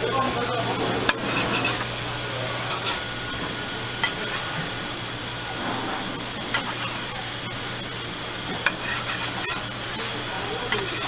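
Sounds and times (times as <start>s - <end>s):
frying hiss: 0.0s - 11.0s
metal spatula scraping a griddle: 1.1s - 1.9s, 2.7s - 3.1s, 4.0s - 4.6s, 8.4s - 11.0s.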